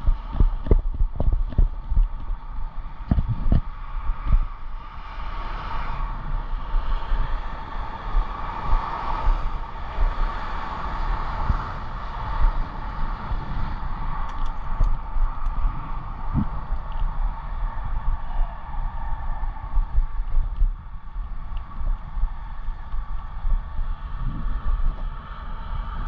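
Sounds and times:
e-bike whir: 0.0s - 26.0s
wind buffeting microphone: 0.0s - 26.0s
faint light ticks: 14.2s - 15.6s, 16.7s - 17.2s, 21.5s - 22.1s.

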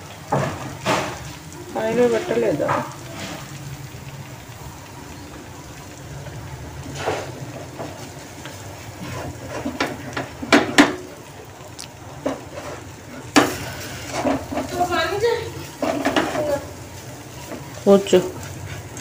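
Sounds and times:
utensils knocking against pan: 9.2s - 11.1s, 12.2s - 14.9s, 15.6s - 16.6s.

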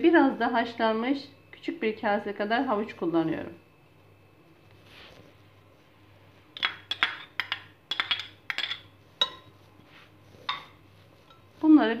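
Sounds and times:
metal spoon clinking on bowls: 6.6s - 9.5s, 10.5s - 11.5s.

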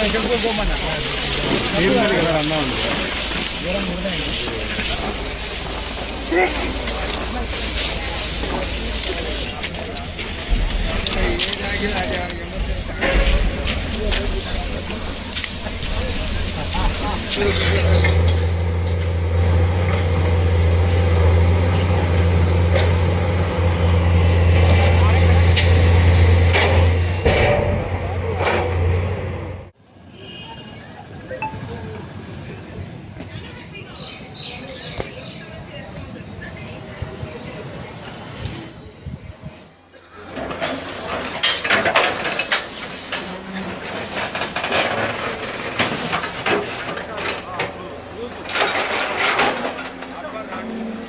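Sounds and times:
railway wagons and track work: 0.0s - 51.0s
large diesel engine droning: 15.9s - 29.8s
metallic clanking and knocking: 25.4s - 29.2s, 40.3s - 50.3s.

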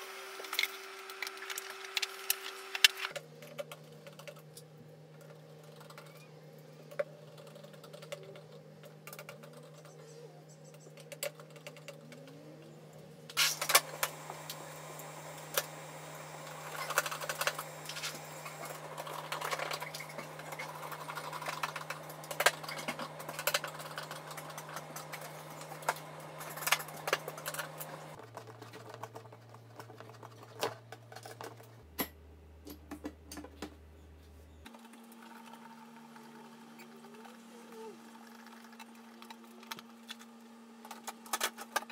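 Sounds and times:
low steady hum: 0.0s - 41.9s.

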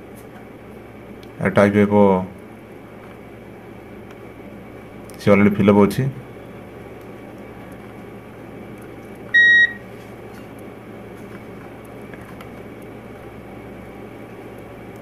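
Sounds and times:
short electronic beep: 9.4s - 9.8s.

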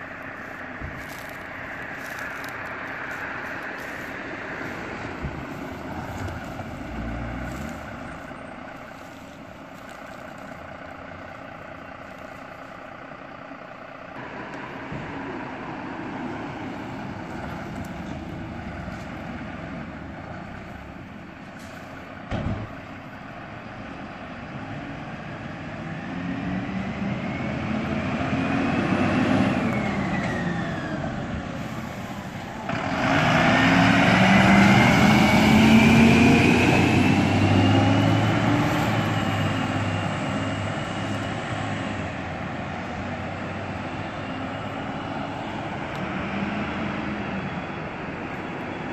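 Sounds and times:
engine whine rising in pitch: 0.0s - 22.2s, 22.9s - 48.9s
fire truck diesel engines: 0.0s - 48.9s.

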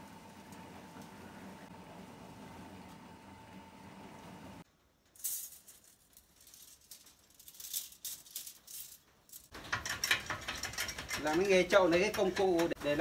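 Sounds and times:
steel wire rattling and jingling: 5.1s - 12.7s.

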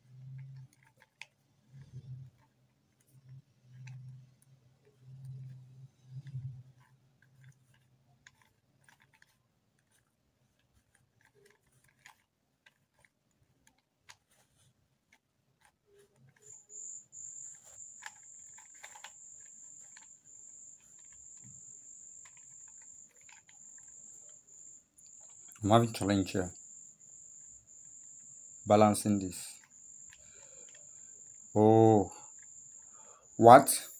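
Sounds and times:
puzzle cube clicking and rattling: 0.0s - 26.5s.

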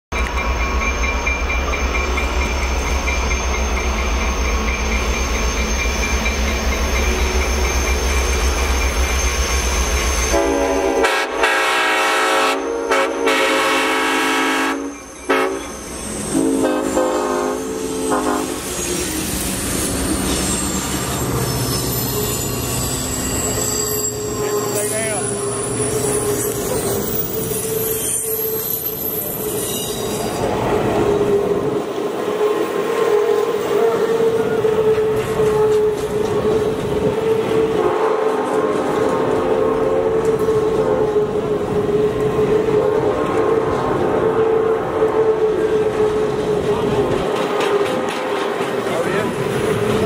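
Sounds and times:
diesel locomotive rumbling: 0.1s - 50.0s
train cars rolling on rails: 0.1s - 50.0s
train air horn: 10.3s - 18.7s, 32.3s - 36.6s, 37.6s - 38.9s, 44.2s - 46.3s.

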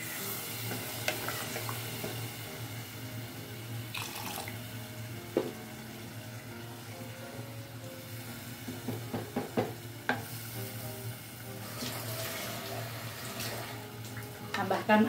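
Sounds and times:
liquid sizzling and bubbling in pot: 0.0s - 15.0s
wooden spatula knocking pot: 8.8s - 10.2s.

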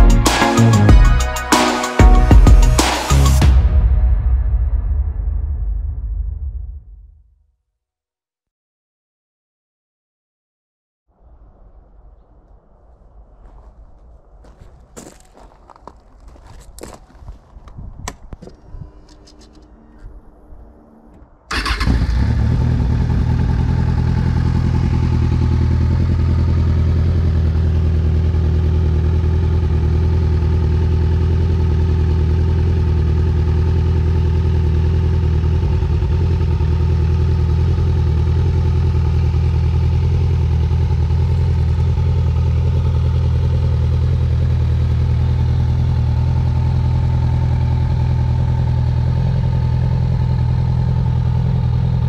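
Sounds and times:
quad engine idling: 21.5s - 52.0s.

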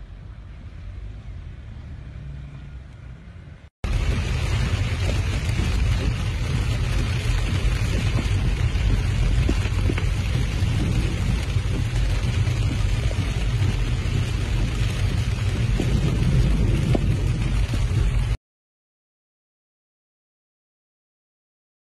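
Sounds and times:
heavy rain on a car: 3.8s - 18.4s
sharp taps of raindrops: 3.8s - 18.4s
car driving through water: 3.9s - 18.4s.

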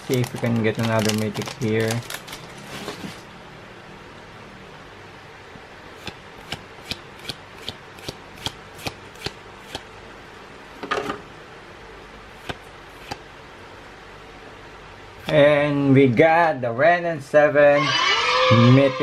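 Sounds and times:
cards rustling: 0.0s - 3.2s
cards snapping: 6.0s - 9.9s, 12.4s - 13.2s.

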